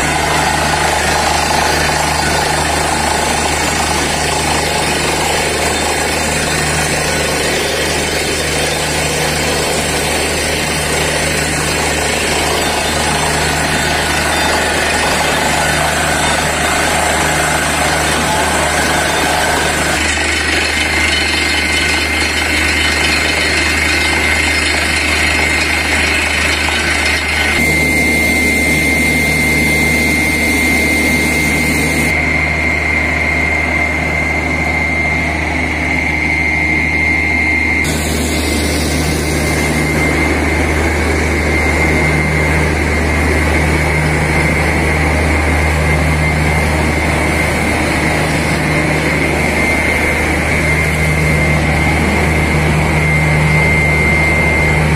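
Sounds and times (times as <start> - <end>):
drilling rig engine drone: 0.0 - 54.9
high whine: 0.0 - 54.9.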